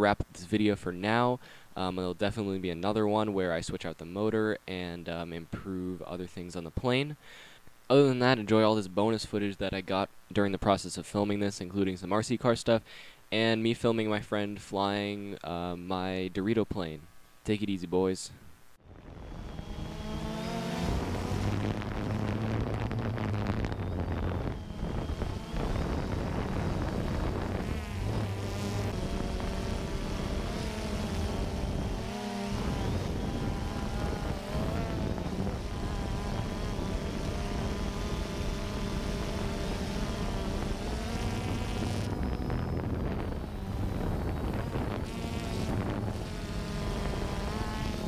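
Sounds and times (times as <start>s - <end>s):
rc plane motor buzzing whine: 18.8s - 48.0s.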